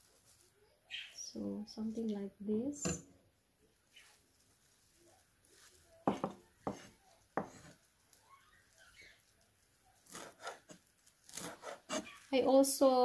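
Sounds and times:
knife chopping on wooden board: 6.1s - 7.7s, 11.3s - 12.0s.

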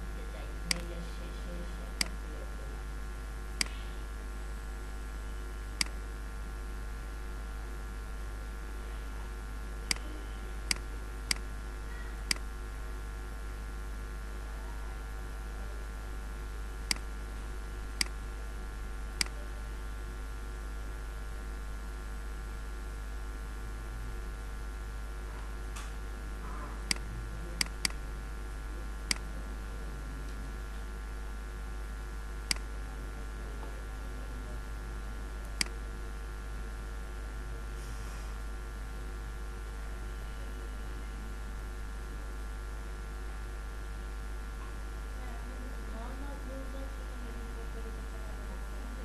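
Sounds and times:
low electrical hum and hiss: 0.0s - 49.0s
computer mouse clicking: 0.7s - 0.9s, 9.9s - 10.1s.

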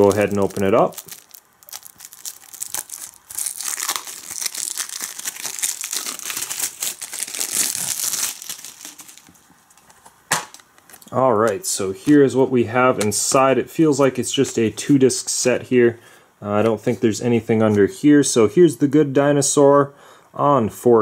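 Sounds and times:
plastic wrap crinkling: 0.0s - 11.1s.

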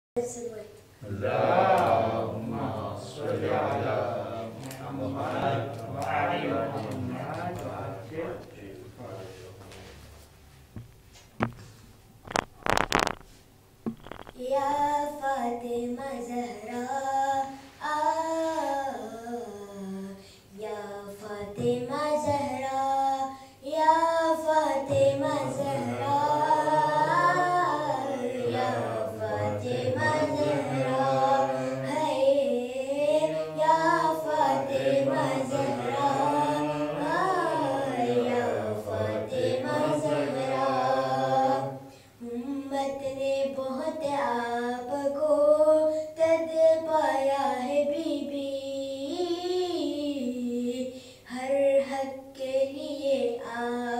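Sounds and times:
boy singing into a microphone: 14.0s - 53.9s.

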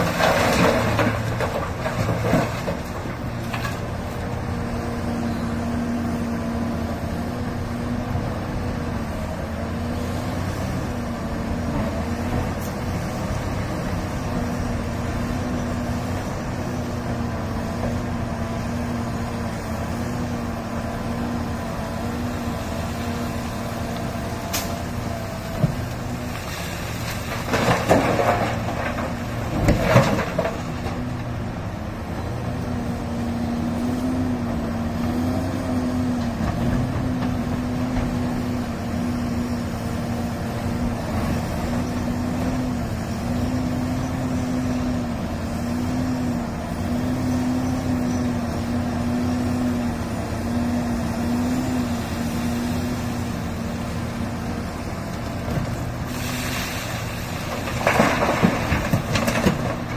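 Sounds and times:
excavator diesel engine droning: 0.0s - 59.9s
rock crashing into steel truck bed: 57.2s - 59.9s.

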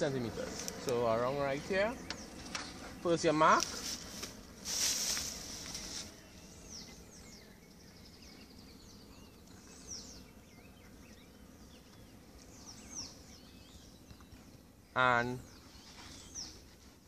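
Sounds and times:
birds chirping: 0.0s - 17.0s
rustling: 3.6s - 6.2s.

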